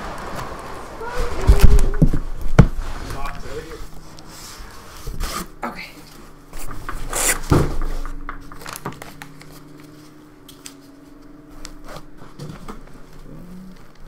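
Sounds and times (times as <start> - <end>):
foam and cardboard rubbing: 0.0 - 8.2
steady low tone: 0.1 - 14.0.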